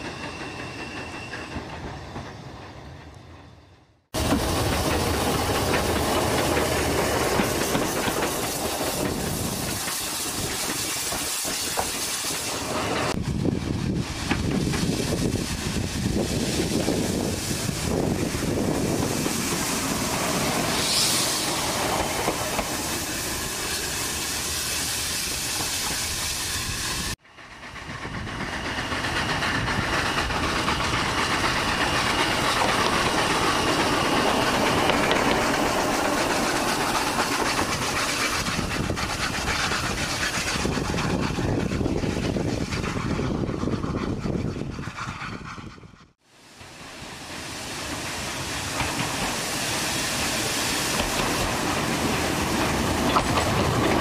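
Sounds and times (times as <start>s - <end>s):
locomotive wheels clanking: 4.2s - 13.2s, 27.8s - 45.2s, 48.0s - 54.0s
steam hissing: 4.2s - 54.0s.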